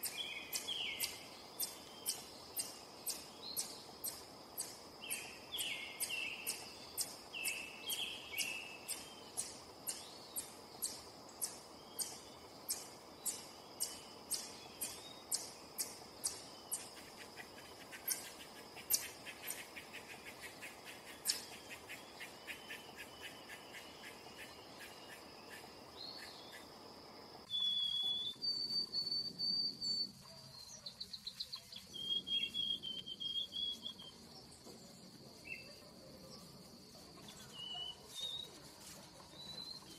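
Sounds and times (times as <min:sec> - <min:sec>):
high insect drone: 0:00.0 - 0:27.5
whistled bird notes: 0:27.4 - 0:34.3, 0:37.3 - 0:38.6, 0:39.3 - 0:39.9.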